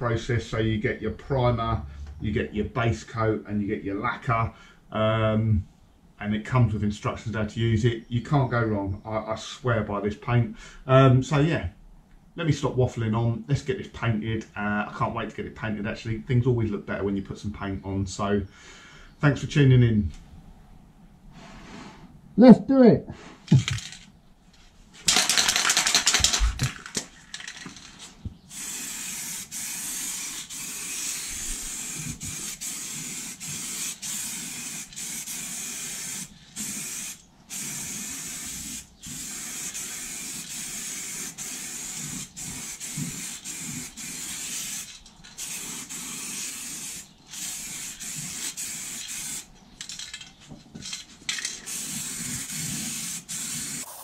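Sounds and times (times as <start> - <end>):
aerosol spray can hissing: 28.5 - 49.5, 51.7 - 54.0.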